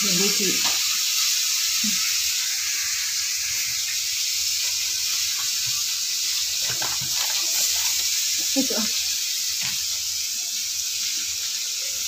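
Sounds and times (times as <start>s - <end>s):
oil sizzling in frying pan: 0.0s - 12.0s
plastic bags crinkling: 6.6s - 8.6s.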